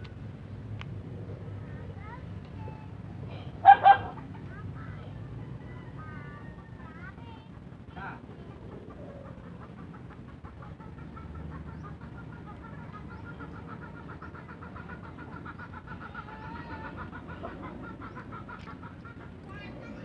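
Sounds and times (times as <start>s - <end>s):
chickens clucking: 0.0s - 20.0s.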